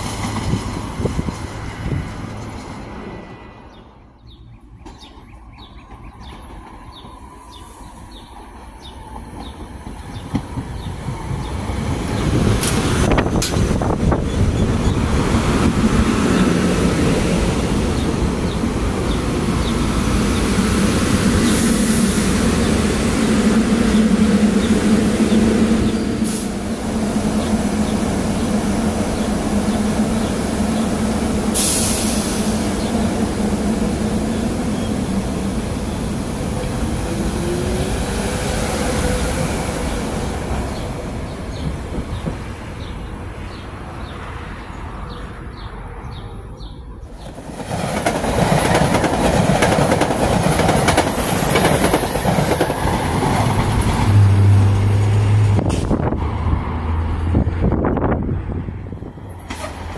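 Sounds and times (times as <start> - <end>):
wheels clickety-clack on rail joints: 0.0 - 3.0, 4.2 - 21.8, 35.9 - 44.2, 47.0 - 59.9
train rushing past at speed: 0.0 - 4.3, 4.9 - 59.9
electric train humming: 5.8 - 43.9, 47.0 - 59.9.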